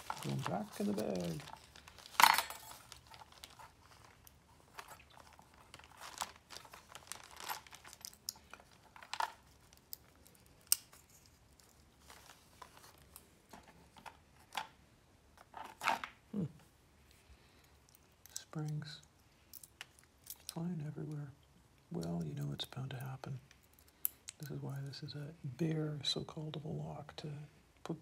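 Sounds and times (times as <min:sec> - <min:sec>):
plastic bag crinkling: 0:00.0 - 0:13.2.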